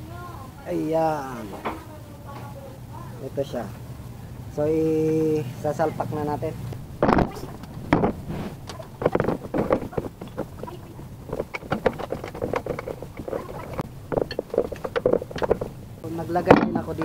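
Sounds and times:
angle grinder knocking and scraping: 6.8s - 17.0s.

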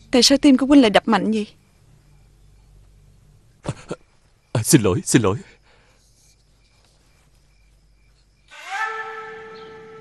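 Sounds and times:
faint low hum: 0.0s - 10.0s
faint high chirp: 6.0s - 10.0s.

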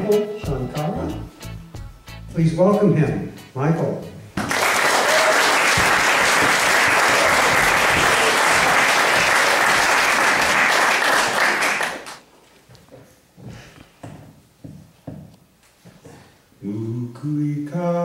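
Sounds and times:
audience applauding: 4.4s - 12.2s.

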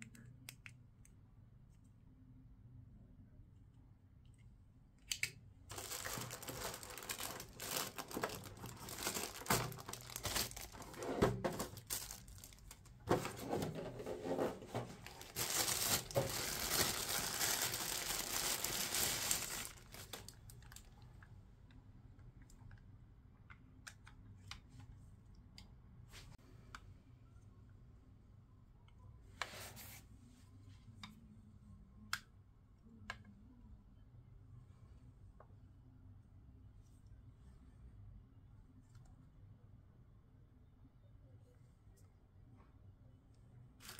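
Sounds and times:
plastic wrapping crinkling: 5.7s - 21.0s.

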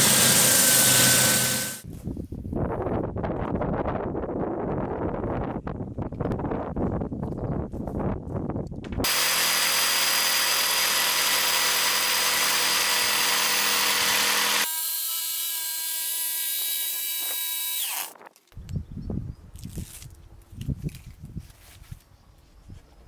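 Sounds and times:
electric jigsaw cutting board: 0.0s - 1.8s, 9.0s - 18.1s.

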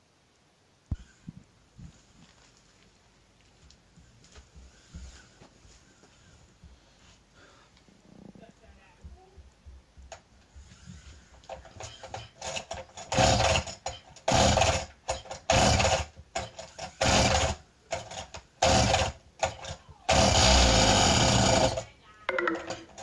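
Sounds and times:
brushcutter engine pull-started: 20.1s - 21.8s.

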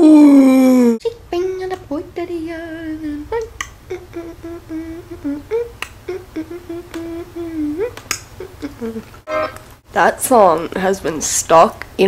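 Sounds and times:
girl humming a tune: 0.0s - 1.8s, 2.5s - 9.5s.

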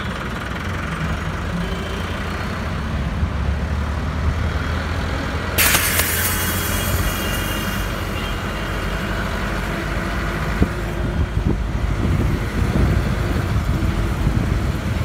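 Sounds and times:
sharp knock: 5.6s - 8.5s.

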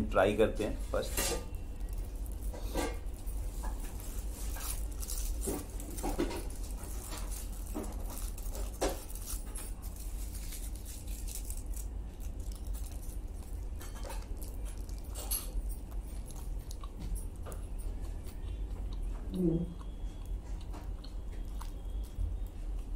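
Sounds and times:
aluminium foil crinkling: 1.0s - 16.8s
person biting and chewing: 3.8s - 19.1s.

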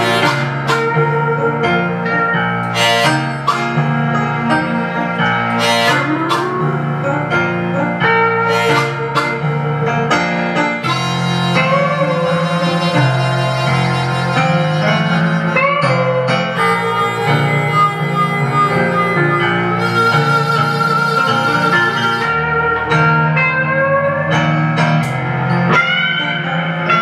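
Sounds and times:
blues harmonica with bent notes: 0.0s - 27.0s
guitar accompaniment: 0.0s - 27.0s.

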